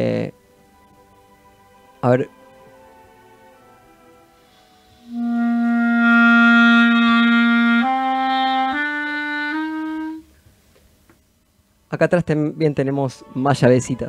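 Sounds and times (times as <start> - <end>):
clarinet playing notes: 2.4 - 10.3.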